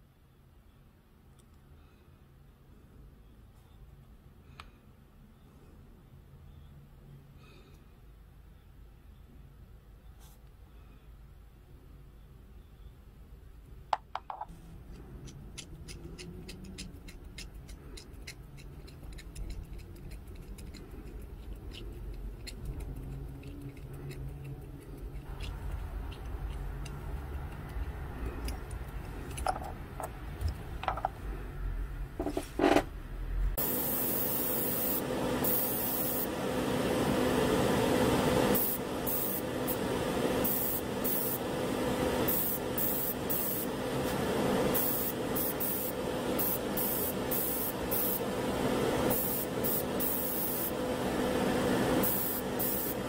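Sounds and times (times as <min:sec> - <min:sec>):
extraction fans humming: 0:13.4 - 0:53.0
airbrush hissing: 0:33.6 - 0:36.5, 0:37.5 - 0:50.8, 0:51.8 - 0:53.0.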